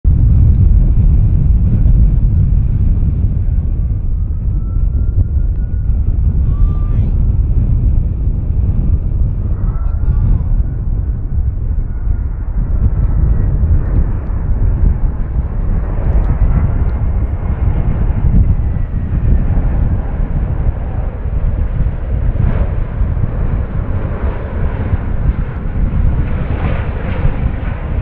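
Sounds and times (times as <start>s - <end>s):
jet engines rumbling: 0.1s - 28.0s.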